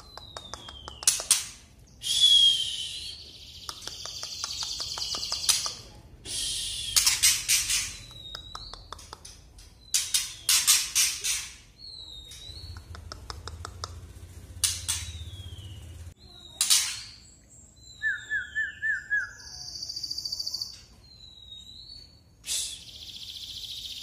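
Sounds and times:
bird ticking clicks: 0.0 - 1.5, 3.6 - 5.8, 8.0 - 10.3, 12.3 - 15.2
thin bird whistles: 2.0 - 3.4, 6.3 - 8.6, 17.8 - 23.9.

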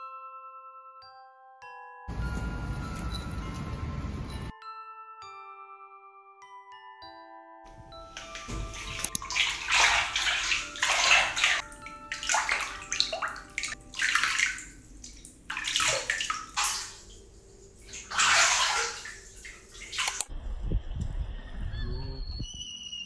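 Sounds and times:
water gushing into bathtub: 8.2 - 20.3.

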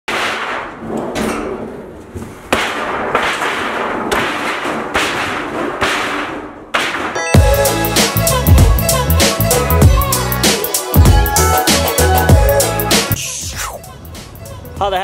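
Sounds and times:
kicks banging sheet metal panel: 0.1 - 1.8, 2.5 - 7.6.

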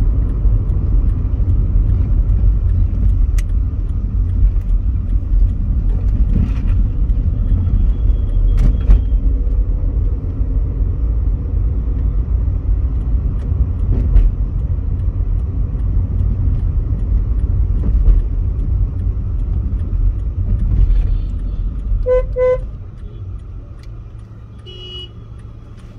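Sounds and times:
road and engine rumble in car: 0.0 - 25.9
vehicle horn toots: 22.0 - 22.7, 24.6 - 25.2.

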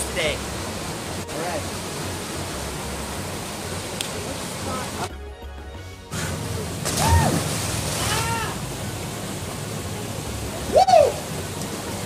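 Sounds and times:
small waterfall rushing: 0.0 - 5.1, 6.2 - 12.0
person splashing into water: 6.8 - 8.6
person whooping: 7.0 - 7.3, 8.0 - 8.6, 10.7 - 11.2.

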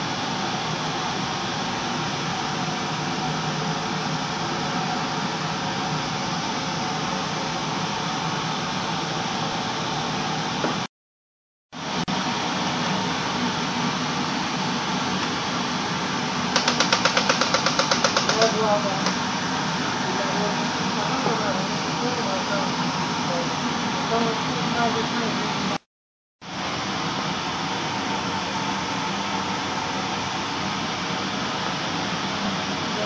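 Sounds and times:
furnace burners and blower roaring: 0.0 - 10.9, 11.8 - 25.8, 26.4 - 33.0
fast rattling: 16.6 - 18.6.

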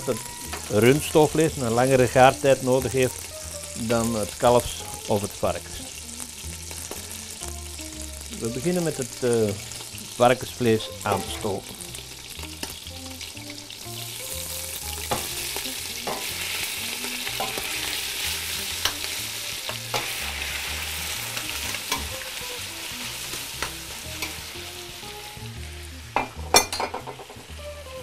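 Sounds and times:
meat sizzling in hot oil: 0.0 - 28.0
metal tongs clicking on a pot: 17.2 - 17.7, 18.8 - 20.1, 21.4 - 22.2, 23.3 - 24.4.

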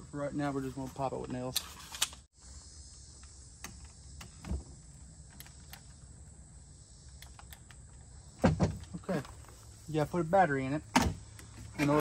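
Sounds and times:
insect buzz: 2.3 - 10.2.

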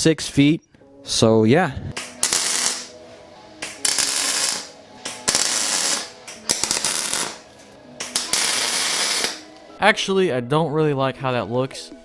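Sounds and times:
welder arc crackling: 2.0 - 3.0, 3.6 - 9.5.

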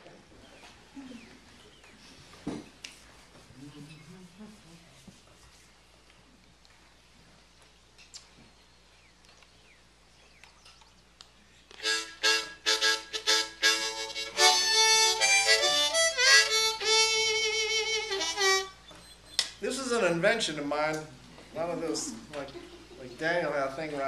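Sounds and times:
harmonica playing: 11.8 - 18.8.

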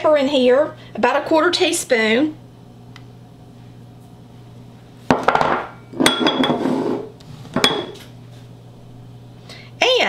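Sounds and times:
dishes clinking: 5.1 - 6.8, 7.6 - 8.1.

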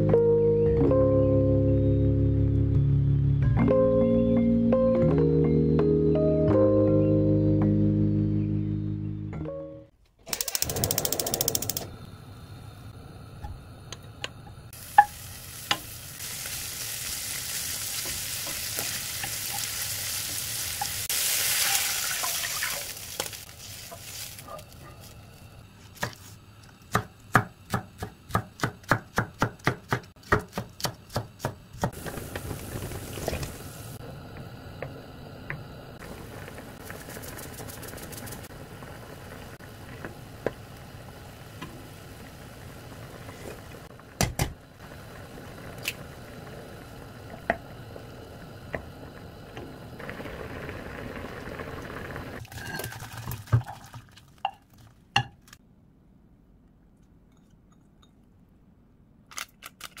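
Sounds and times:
soup boiling with bubbling hiss: 10.5 - 27.7, 31.8 - 54.4.

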